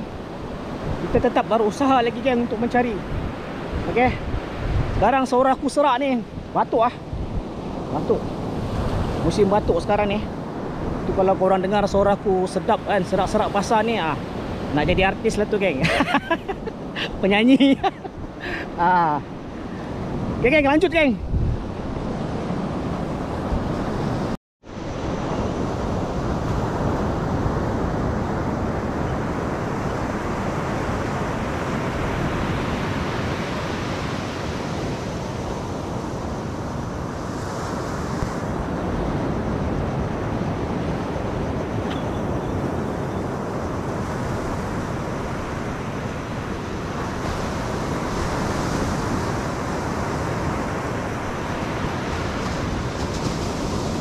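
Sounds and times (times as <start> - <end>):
surf breaking on beach: 0.0 - 54.0
wind on microphone: 0.0 - 54.0.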